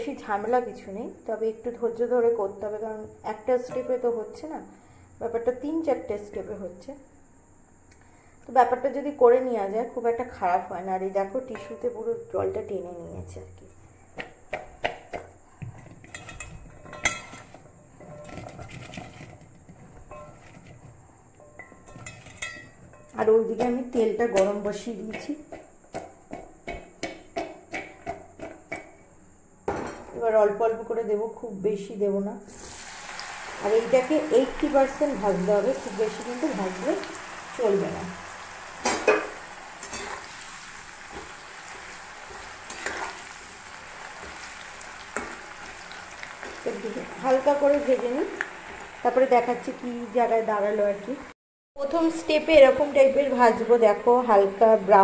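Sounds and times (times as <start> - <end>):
spatula knocking and scraping pan: 3.6 - 4.1, 14.2 - 29.0, 38.8 - 43.5, 44.1 - 48.1
fries sizzling in hot oil: 32.4 - 51.4.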